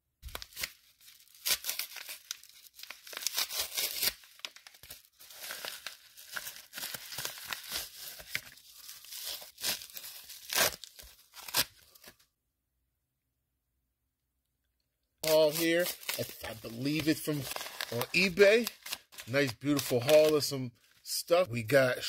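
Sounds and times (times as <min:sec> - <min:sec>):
paper mailer tearing: 0:00.3 - 0:12.1, 0:15.2 - 0:20.5.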